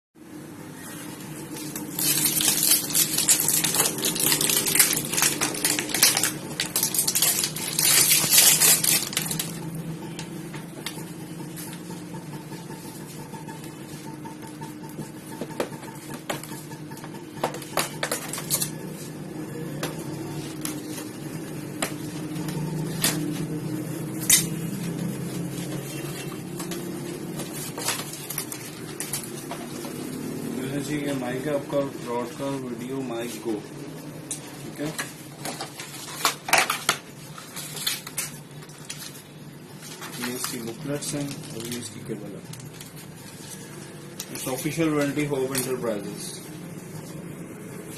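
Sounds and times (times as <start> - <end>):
plastic wrap tearing and crinkling: 1.5 - 9.8, 27.2 - 29.4, 35.4 - 44.8.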